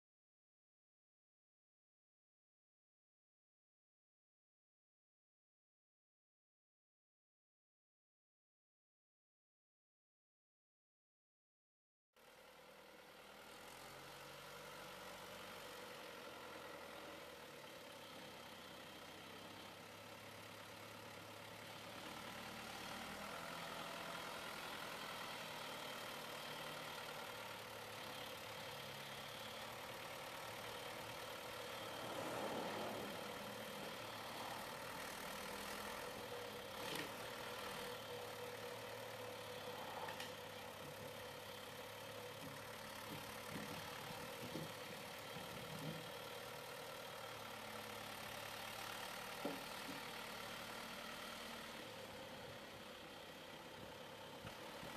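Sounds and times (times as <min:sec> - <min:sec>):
tractor diesel engine running: 0:12.2 - 0:54.9.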